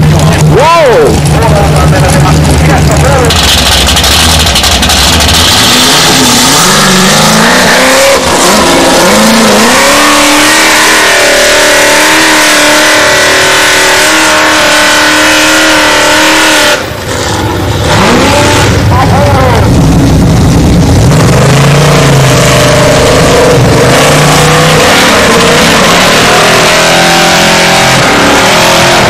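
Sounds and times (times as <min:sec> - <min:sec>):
buggy engine revving: 0:00.0 - 0:29.0.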